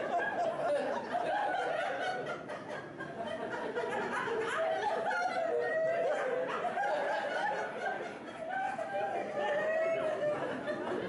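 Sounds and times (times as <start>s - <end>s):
people laughing and chattering: 0.0s - 11.0s.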